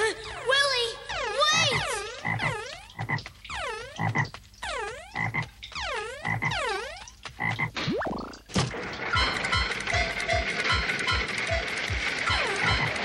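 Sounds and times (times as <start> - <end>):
music: 9.0 - 13.0.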